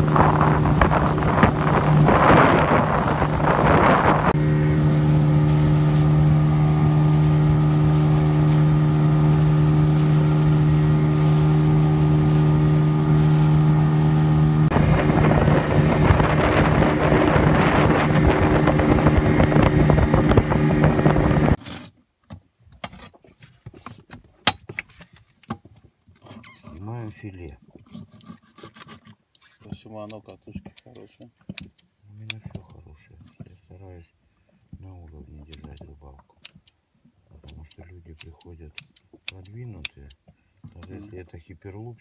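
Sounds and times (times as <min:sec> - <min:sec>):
outboard motor running: 0:00.0 - 0:21.6
wind and water rushing: 0:00.0 - 0:21.6.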